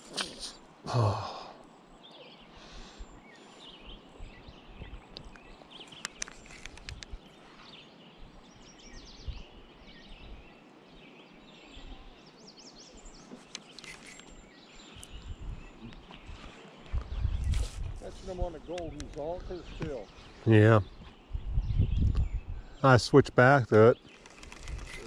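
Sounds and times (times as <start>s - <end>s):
small birds chirping: 0.0s - 25.0s
sharp clicks: 5.2s - 7.2s, 18.7s - 19.3s, 24.1s - 25.0s.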